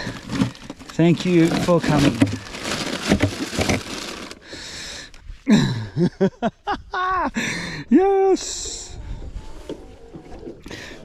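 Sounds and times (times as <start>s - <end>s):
ice crunching: 0.0s - 4.5s
plastic bag crinkling: 0.0s - 4.5s.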